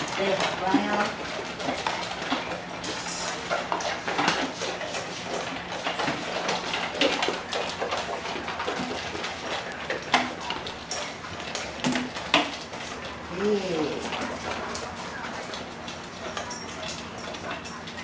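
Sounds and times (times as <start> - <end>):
metal dog bowls clinking: 13.8 - 18.0.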